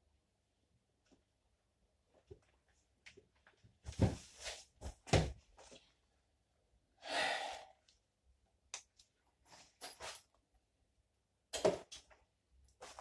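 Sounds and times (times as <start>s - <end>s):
breathy exhale: 7.0s - 7.8s.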